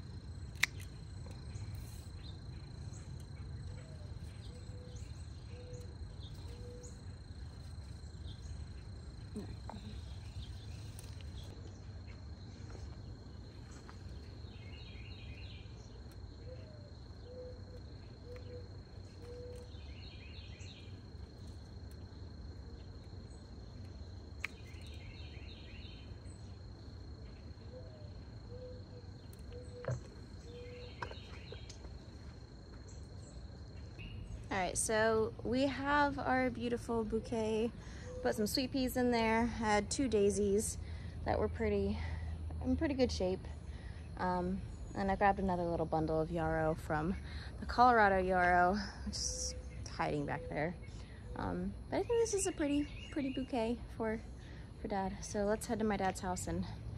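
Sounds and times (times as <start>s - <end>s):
high insect drone: 0.0s - 56.9s
sharp clicks: 0.5s - 2.2s
bird hooting: 3.7s - 7.2s, 16.4s - 20.0s.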